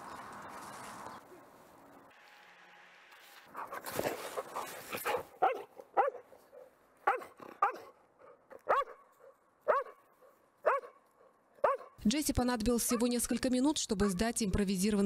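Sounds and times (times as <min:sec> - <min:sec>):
dog barking: 0:05.0 - 0:10.0, 0:10.6 - 0:12.0.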